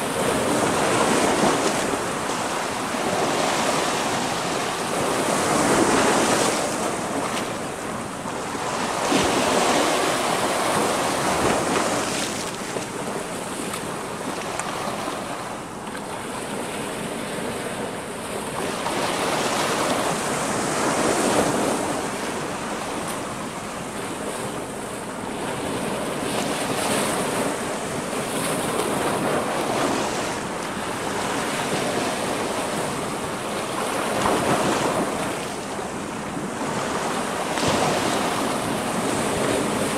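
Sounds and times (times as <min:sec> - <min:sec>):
waves breaking on rocks: 0:00.0 - 0:15.4.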